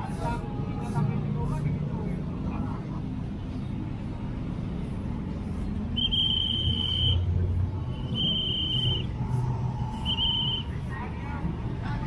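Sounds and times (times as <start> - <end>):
street traffic rumble: 0.0 - 12.0
vehicle passing: 0.0 - 12.0
high-pitched whistle blasts: 6.0 - 7.3, 7.9 - 9.1, 10.0 - 10.8.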